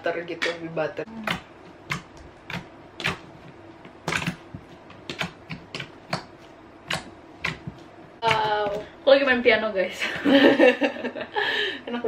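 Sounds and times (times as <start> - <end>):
slime clicking and popping: 4.0 - 4.4, 5.0 - 7.6.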